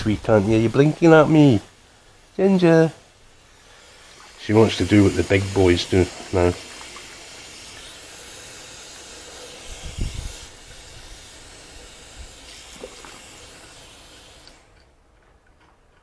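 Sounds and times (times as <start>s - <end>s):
water running from a tap: 3.8s - 14.7s.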